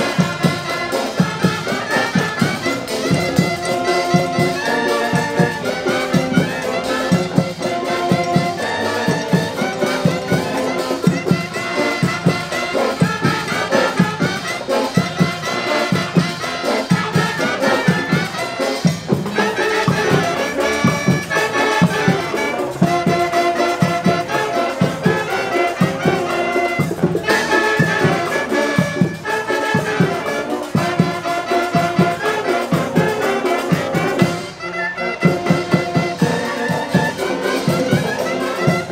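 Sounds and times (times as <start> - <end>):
brass band playing over a beat: 0.0 - 38.9.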